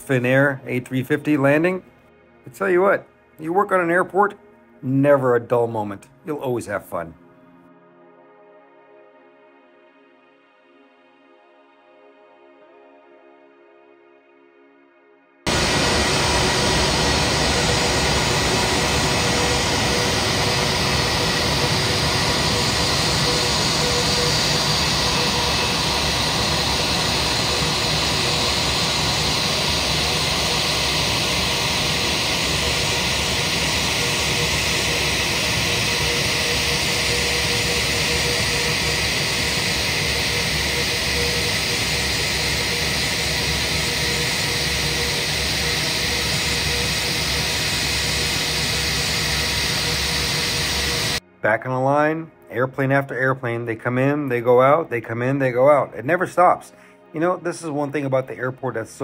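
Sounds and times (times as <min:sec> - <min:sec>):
jet engine rush and whine: 0:15.5 - 0:51.2.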